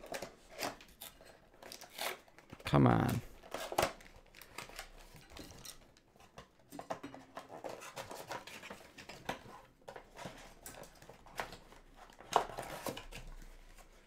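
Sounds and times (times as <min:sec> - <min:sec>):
packaging crinkling and rustling: 0:03.3 - 0:14.0.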